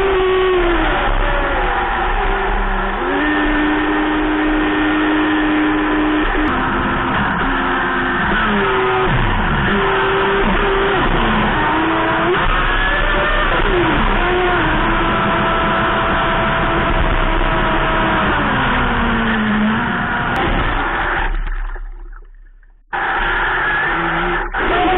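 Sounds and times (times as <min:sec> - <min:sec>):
water rushing against hull: 0:20.7 - 0:22.9
electric motor whining: 0:23.0 - 0:24.9.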